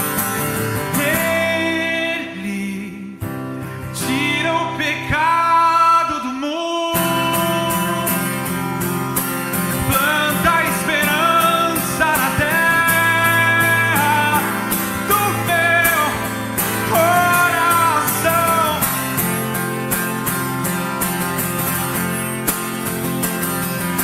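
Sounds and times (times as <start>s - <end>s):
acoustic guitar: 0.0s - 24.0s
man singing worship song: 0.8s - 3.3s, 3.9s - 8.4s, 9.8s - 19.0s.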